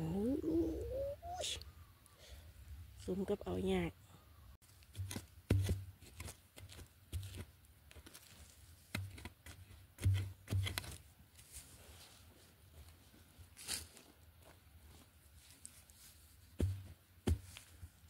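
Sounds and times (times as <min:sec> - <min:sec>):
soil crunching and falling: 0:04.6 - 0:11.6
spade chopping into soil: 0:04.9 - 0:07.5, 0:08.9 - 0:11.0.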